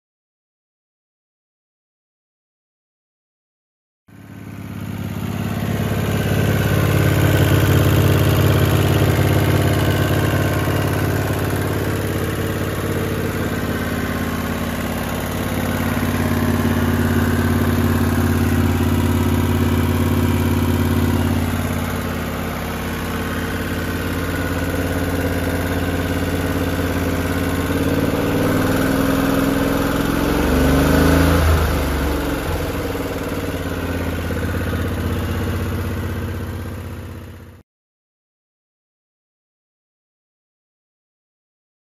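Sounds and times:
mower engine running: 4.1 - 37.6.

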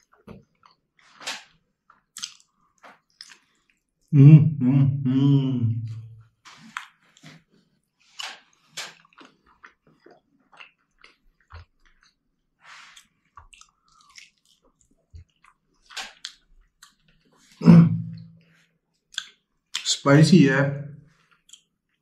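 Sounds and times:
person chewing chicken wing: 0.0 - 4.1, 6.5 - 18.2, 21.1 - 22.0.

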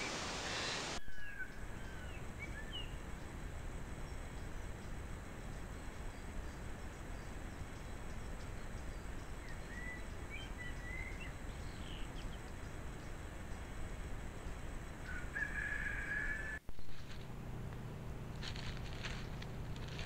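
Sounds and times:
background hiss: 0.0 - 20.0
bird chirping: 4.0 - 15.6.

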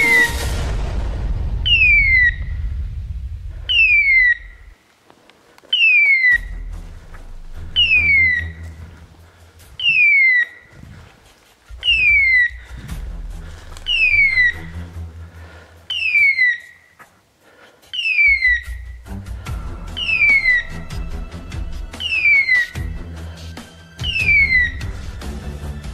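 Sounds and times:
low rumble: 0.0 - 4.8, 6.4 - 9.8, 10.8 - 15.7
falling whistle-like screech: 1.6 - 2.7.

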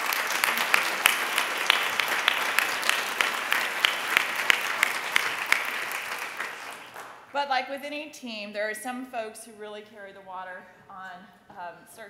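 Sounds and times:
audience applause: 0.0 - 7.3.

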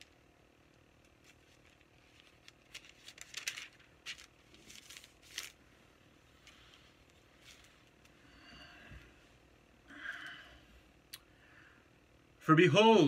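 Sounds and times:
paper pages rustling: 1.0 - 5.7, 6.3 - 8.1.

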